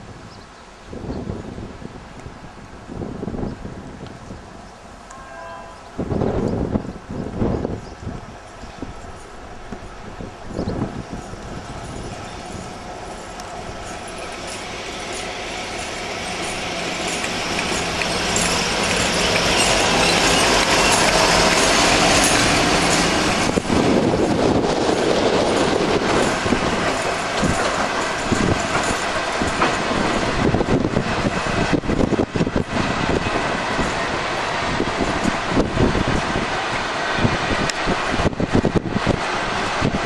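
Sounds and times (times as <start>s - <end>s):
diesel locomotive engine running: 7.3s - 40.0s
freight wagons rumbling past: 8.5s - 40.0s.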